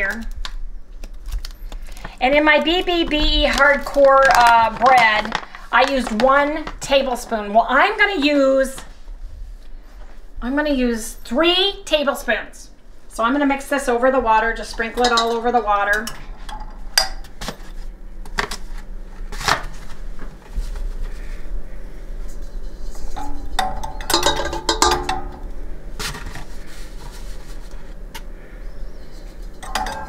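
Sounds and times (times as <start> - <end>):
low steady hum: 0.0 - 30.0
spoon clinking metal bowl: 15.0 - 17.3, 23.0 - 25.5, 29.6 - 30.0.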